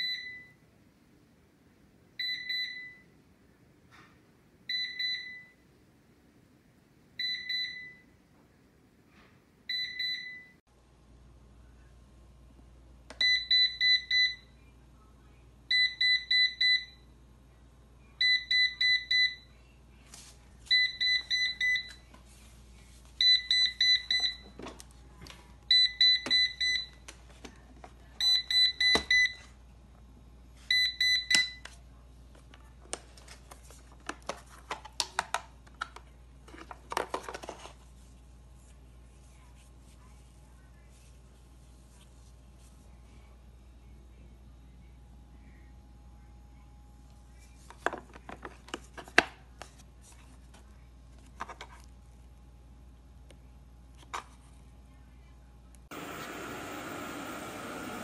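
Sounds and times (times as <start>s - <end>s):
steady low hum: 37.8s - 48.2s
robot vacuum beeping: 55.9s - 58.0s.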